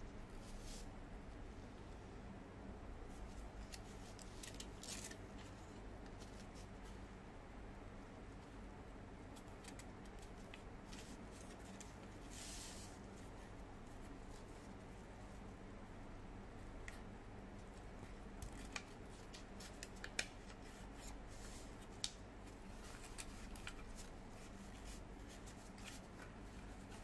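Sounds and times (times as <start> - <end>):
paper rustling and creasing: 3.6 - 7.0, 9.4 - 13.4, 18.4 - 27.0.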